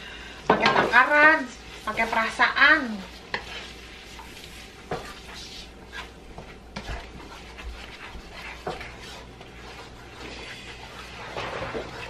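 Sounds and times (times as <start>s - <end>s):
low sizzle: 0.0s - 12.0s
spatula scraping wok: 0.4s - 12.0s.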